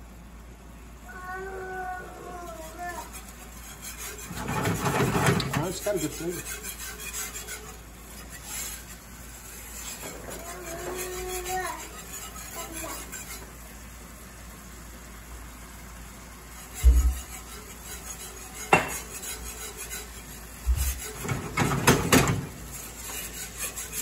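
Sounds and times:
whisk scraping in skillet: 1.7 - 24.0
skillet clattering on grate: 4.2 - 6.4, 17.0 - 19.5, 20.7 - 24.0.

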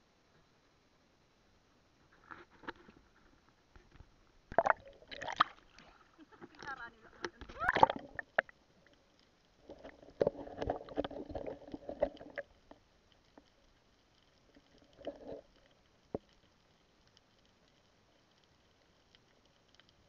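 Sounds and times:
muffled underwater bubbling: 4.5 - 8.6
water splashing and gurgling: 4.5 - 8.8, 9.6 - 13.0.

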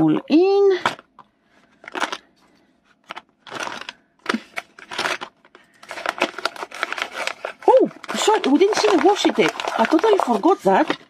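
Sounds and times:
packaging pouch rustling: 3.0 - 11.0.

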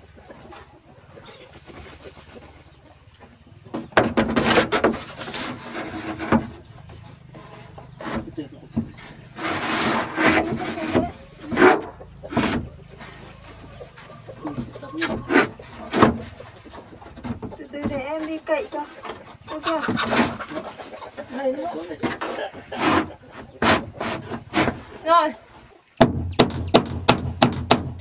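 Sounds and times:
roofing sheet scraping over wood: 4.2 - 8.4, 9.0 - 13.4, 21.9 - 25.2.

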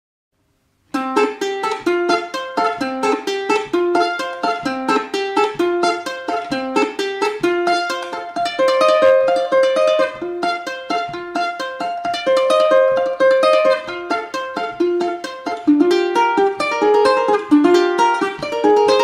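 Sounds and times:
fast ukulele melody: 0.9 - 19.0.

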